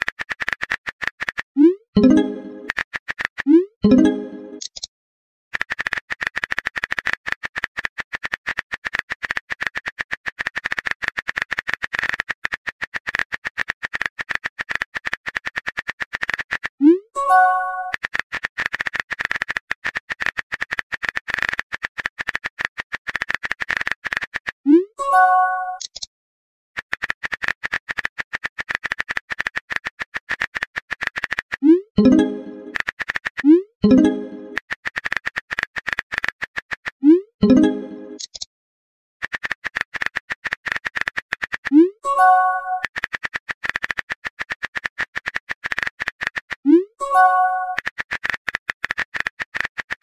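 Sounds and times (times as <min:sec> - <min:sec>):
rapid keyboard typing: 0:00.0 - 0:04.8, 0:05.5 - 0:25.9, 0:26.8 - 0:38.3, 0:39.2 - 0:50.0
keyboard typing clicks: 0:00.0 - 0:04.9, 0:30.4 - 0:38.5, 0:39.3 - 0:49.9.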